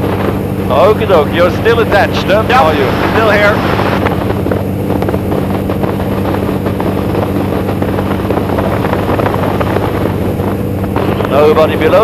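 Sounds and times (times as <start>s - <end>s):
biplane engine droning: 0.0s - 12.0s
rush of slipstream: 2.6s - 4.4s.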